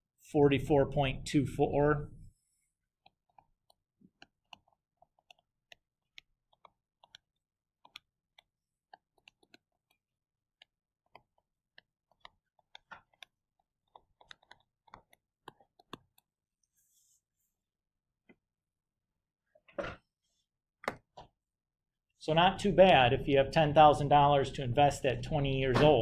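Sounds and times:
stylus tapping on tablet screen: 3.0 - 16.4.

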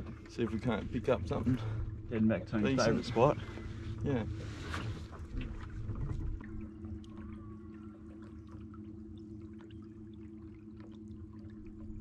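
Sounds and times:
outboard motor humming: 0.0 - 12.0
water trickling: 5.6 - 12.0.

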